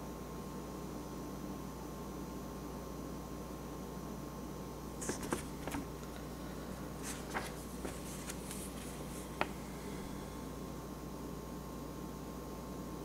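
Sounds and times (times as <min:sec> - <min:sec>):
faint steady hum: 0:00.0 - 0:13.0
paper pages rustling: 0:05.0 - 0:10.6.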